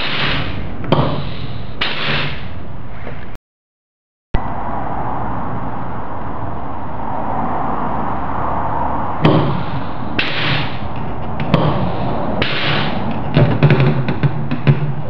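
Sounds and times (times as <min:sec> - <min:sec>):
steady background noise: 0:00.0 - 0:03.4, 0:04.4 - 0:15.0
short hiss of air: 0:01.2 - 0:02.6
small metal knocks: 0:13.1 - 0:15.0.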